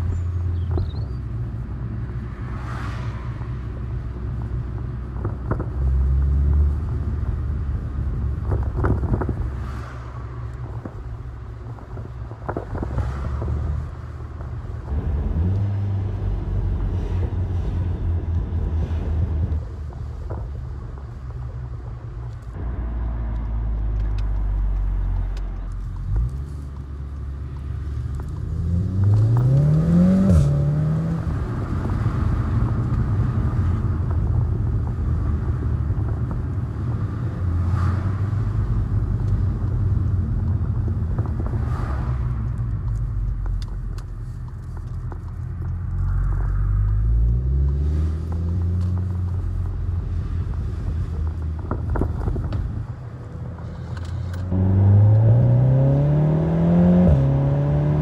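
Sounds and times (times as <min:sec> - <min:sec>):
car engine droning in cabin: 0:00.0 - 0:58.0
engine revving up: 0:54.4 - 0:58.0.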